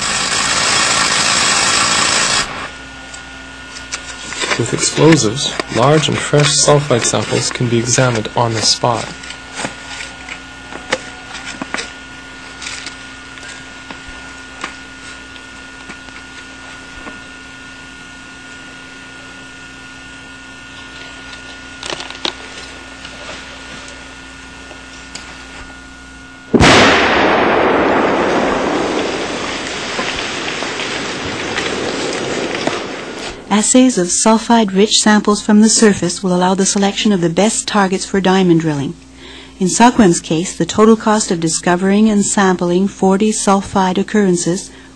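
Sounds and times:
dynamite blast: 0:00.0 - 0:02.7, 0:26.5 - 0:33.8
steady hum: 0:00.0 - 0:44.9.

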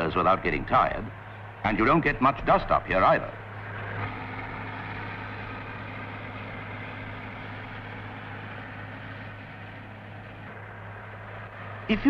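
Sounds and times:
combine harvester running: 0:00.0 - 0:12.0.

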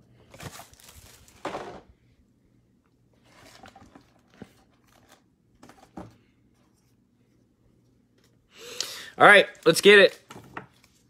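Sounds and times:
foil packs crinkling: 0:00.2 - 0:01.5.

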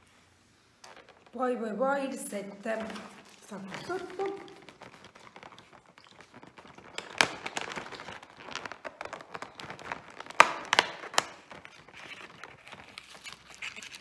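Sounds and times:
paper crinkling: 0:00.0 - 0:01.4, 0:02.3 - 0:14.0
cardboard tearing: 0:02.8 - 0:14.0
sharp cardboard cracks: 0:04.4 - 0:14.0.

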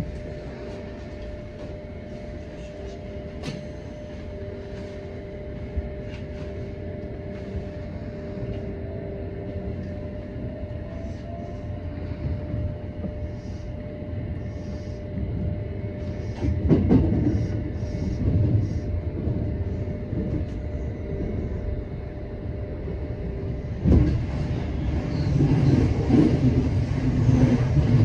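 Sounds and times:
train motor hum: 0:00.0 - 0:28.0
train wheels rumbling: 0:14.6 - 0:28.0.

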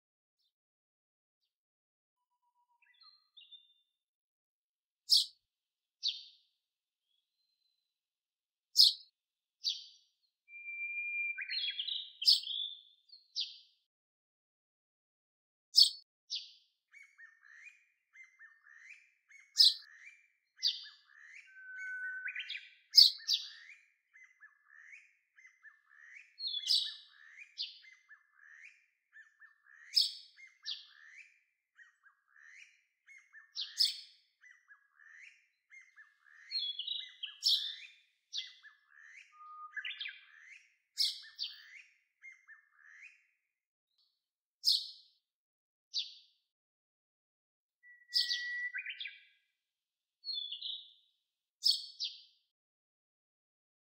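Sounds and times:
birds chirping: 0:02.3 - 0:04.0, 0:10.5 - 0:13.7, 0:15.8 - 0:43.3, 0:47.8 - 0:49.5, 0:50.3 - 0:51.0
sharp bird call: 0:21.0 - 0:23.1.

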